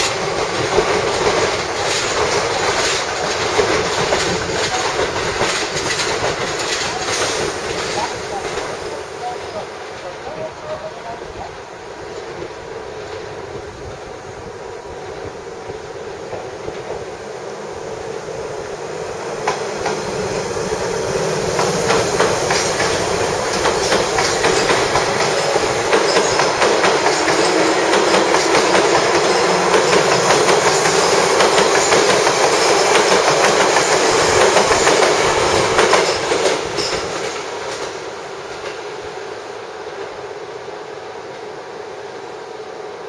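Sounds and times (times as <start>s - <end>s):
train wheels clacking over rail joints: 0.0s - 8.9s, 21.4s - 38.0s
electric train passing: 0.0s - 43.0s.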